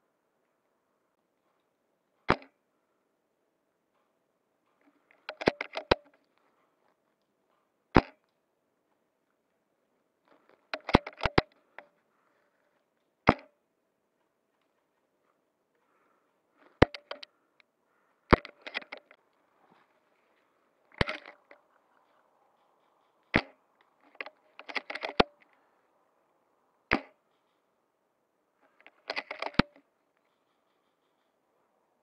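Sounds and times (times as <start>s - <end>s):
quick runs of clicks: 4.0s - 8.4s, 10.2s - 12.0s, 16.6s - 17.7s, 18.3s - 19.3s, 20.8s - 25.6s, 28.6s - 31.4s.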